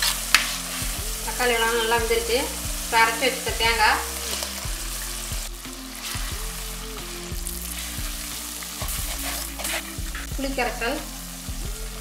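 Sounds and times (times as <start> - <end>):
food sizzling in a pan: 0.0 - 12.0
soft background music: 0.0 - 12.0.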